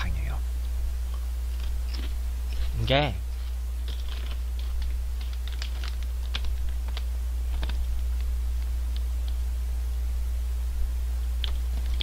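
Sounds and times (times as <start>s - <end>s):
low electrical hum: 0.0s - 12.0s
plastic snack bag crinkling: 3.4s - 9.4s.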